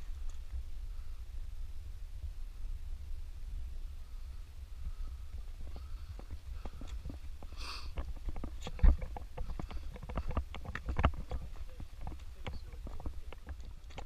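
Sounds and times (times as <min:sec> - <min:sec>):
wind rumbling on microphone: 0:00.0 - 0:14.0
footsteps crunching on stones: 0:05.6 - 0:14.0.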